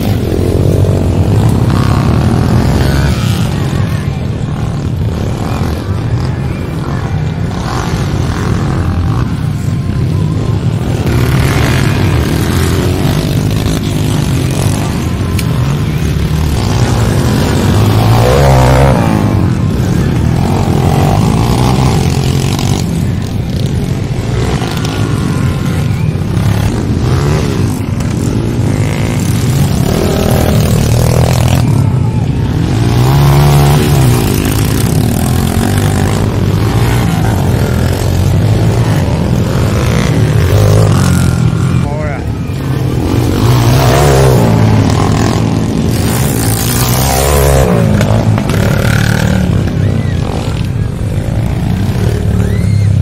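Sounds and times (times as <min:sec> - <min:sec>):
dirt bike engines revving: 0:00.0 - 0:53.0.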